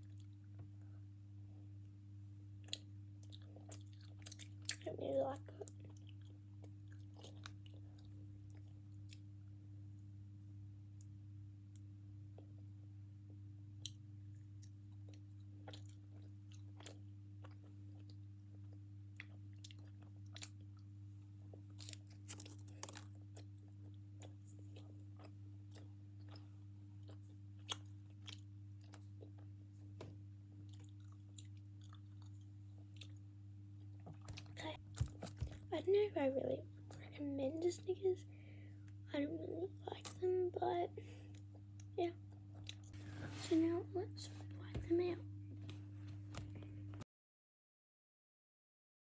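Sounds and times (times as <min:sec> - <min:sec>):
chewing with soft crunches: 0:00.0 - 0:00.9, 0:02.6 - 0:09.5, 0:13.3 - 0:29.6, 0:30.6 - 0:35.8, 0:41.1 - 0:43.1
steady low hum: 0:00.0 - 0:47.0.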